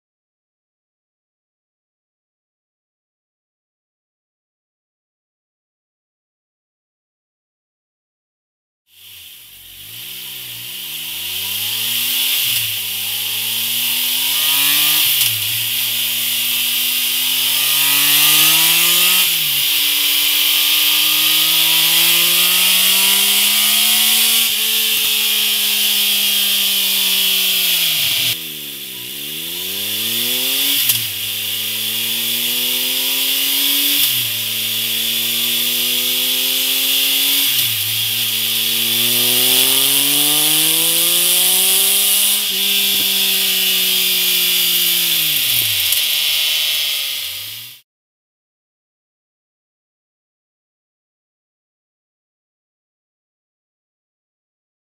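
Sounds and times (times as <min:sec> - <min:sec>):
motorcycle engine revving through gears: 0:08.9 - 0:47.8.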